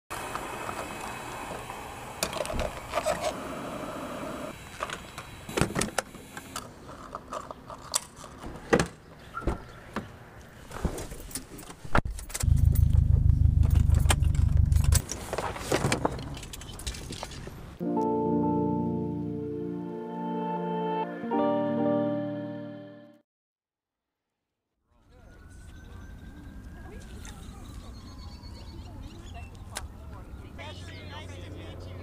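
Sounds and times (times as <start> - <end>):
loud low rumble: 12.5 - 15.0.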